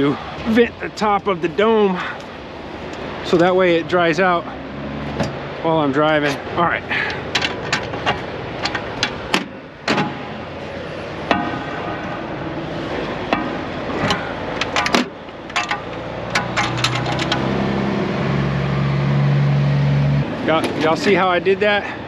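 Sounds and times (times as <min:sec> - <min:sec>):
metal clinks and knocks: 0:07.0 - 0:10.2, 0:13.3 - 0:17.5.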